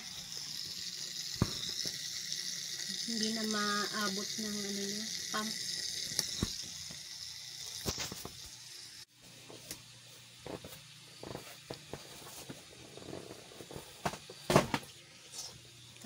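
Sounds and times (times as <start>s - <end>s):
submersible pump watery hiss: 0.0s - 9.2s.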